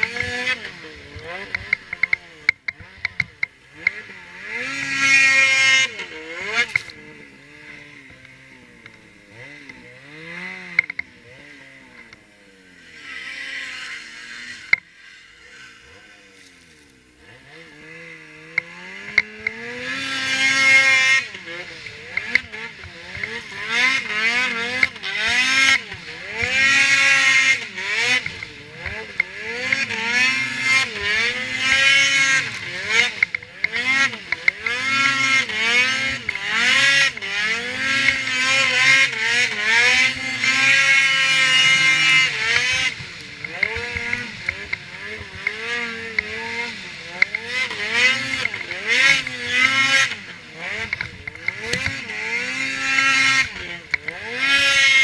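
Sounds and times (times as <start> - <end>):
snowmobile engine revving: 0.0 - 55.0
sled ploughing through snow: 19.0 - 55.0.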